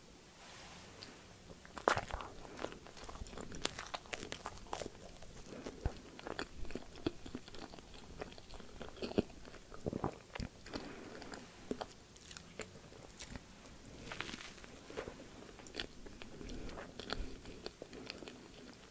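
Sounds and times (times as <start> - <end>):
person chewing and biting food: 1.5 - 18.9.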